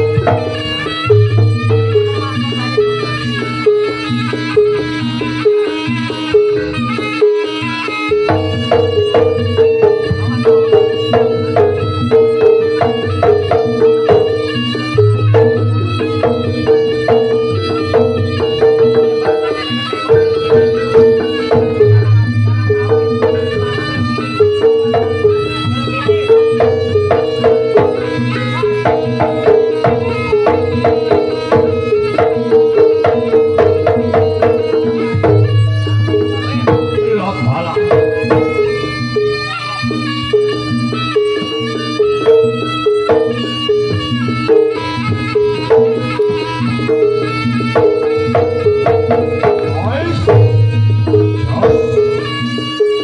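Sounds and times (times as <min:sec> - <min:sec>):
hand drum strokes: 0:00.0 - 0:53.0
repeating pitched melody: 0:48.6 - 0:52.8
ensemble held tones: 0:48.8 - 0:52.6.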